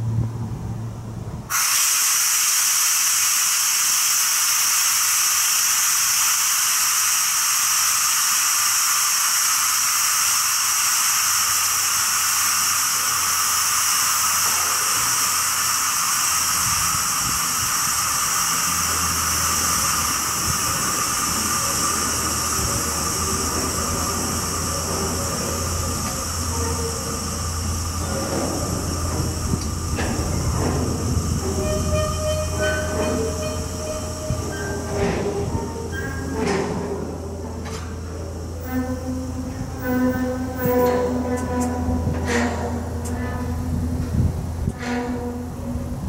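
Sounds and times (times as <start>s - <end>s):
air brakes hissing: 1.5s - 46.0s
low hum: 14.4s - 46.0s.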